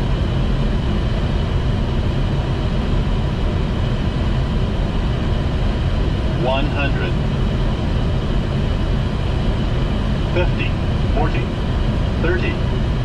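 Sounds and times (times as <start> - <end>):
airflow and engines rushing: 0.0 - 13.0.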